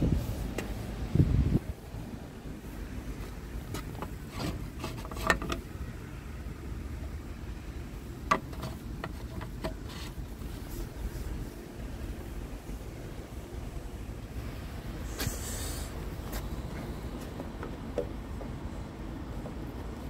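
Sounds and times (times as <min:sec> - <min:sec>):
wind on microphone: 0:00.0 - 0:02.0
steady low rumble: 0:00.0 - 0:04.8, 0:05.6 - 0:20.0.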